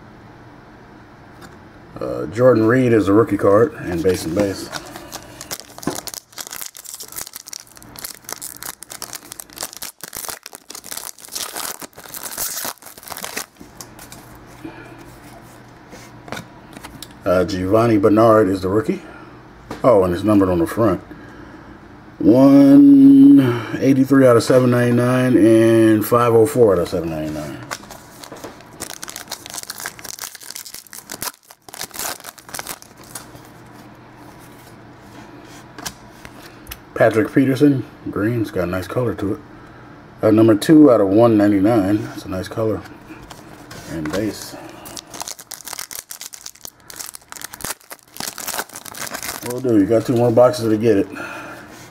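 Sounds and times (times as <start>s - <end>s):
foil wrapper tearing and crinkling: 4.2s - 14.2s, 27.7s - 33.4s, 44.2s - 50.4s.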